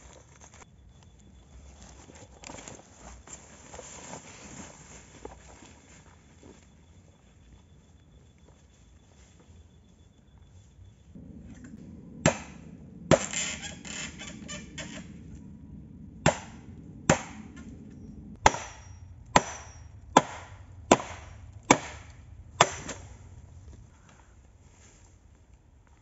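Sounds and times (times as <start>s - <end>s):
machete chopping bamboo: 12.3s - 13.3s, 16.3s - 17.4s, 18.4s - 23.1s.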